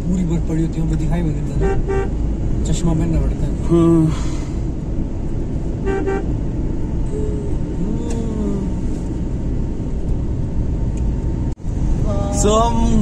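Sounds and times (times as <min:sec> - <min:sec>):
car road and engine rumble: 0:00.0 - 0:13.0
car horn toot: 0:01.6 - 0:02.2, 0:05.8 - 0:06.4.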